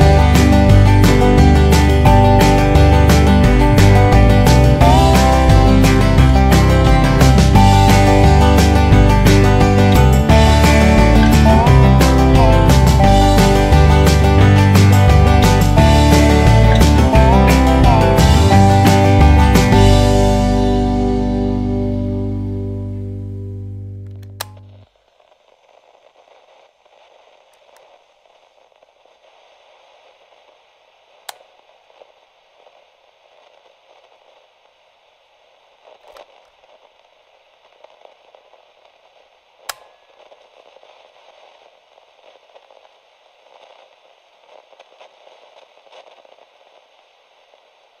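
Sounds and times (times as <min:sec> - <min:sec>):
static hiss with crackle: 0:00.0 - 0:48.0
sharp clicks: 0:24.0 - 0:24.8.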